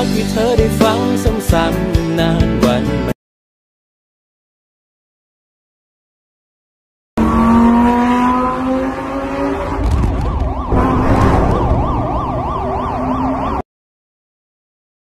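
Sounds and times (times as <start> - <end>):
falling pitched tone: 7.2 - 13.6
siren sweeping up and down: 7.2 - 13.7.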